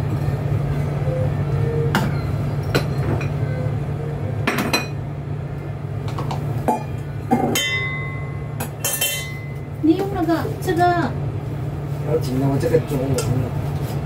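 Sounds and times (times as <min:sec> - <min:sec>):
steady low hum: 0:00.0 - 0:14.0
metal pots and utensils clinking: 0:06.7 - 0:09.6.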